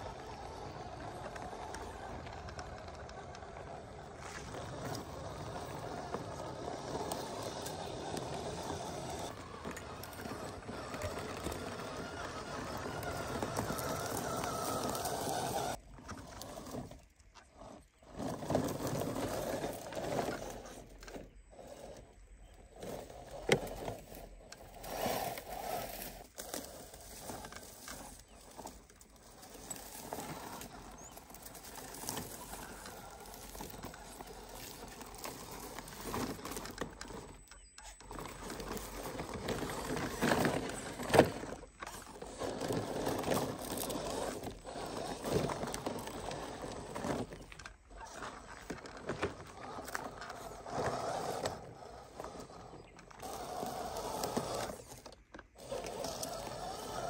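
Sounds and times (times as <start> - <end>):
toy truck motor whirring: 0.0 - 57.0
tyres crunching over stones: 0.0 - 57.0.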